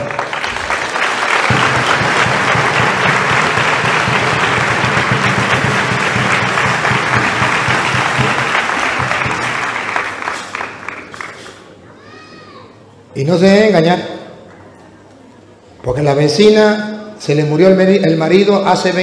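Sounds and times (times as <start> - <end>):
congregation applauding: 0.0 - 11.8.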